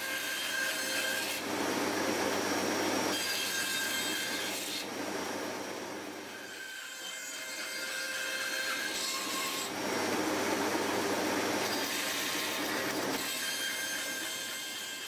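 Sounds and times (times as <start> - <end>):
bandsaw cutting wood: 6.3 - 15.0.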